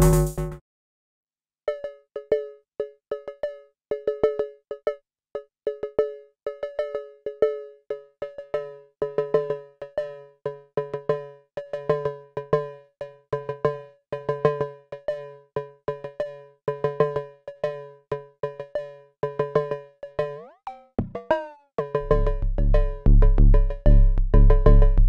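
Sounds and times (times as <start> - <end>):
drum machine pattern: 0.0 - 0.6, 20.4 - 25.0
low synth note: 22.0 - 24.3.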